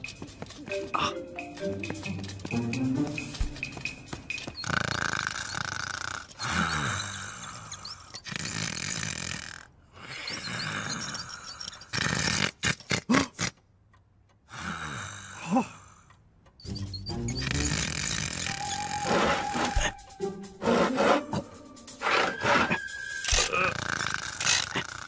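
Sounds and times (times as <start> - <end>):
cartoon rasping scraping: 16.6 - 25.0.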